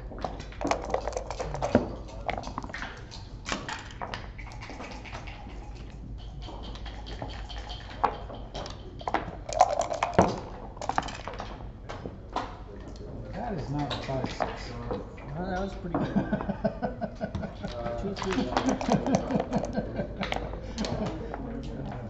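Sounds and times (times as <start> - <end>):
dice clattering: 0.3 - 2.8, 9.1 - 11.5
game pieces clicking on board: 0.3 - 11.6, 18.2 - 21.0.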